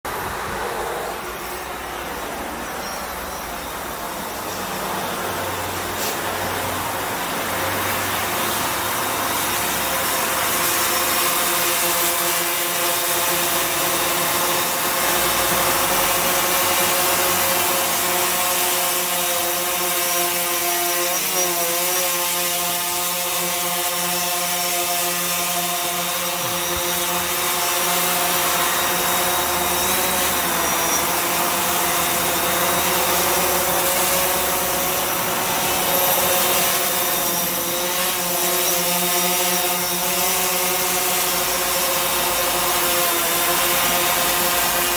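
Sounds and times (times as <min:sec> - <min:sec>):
drone propellers whining: 0:00.1 - 0:44.9.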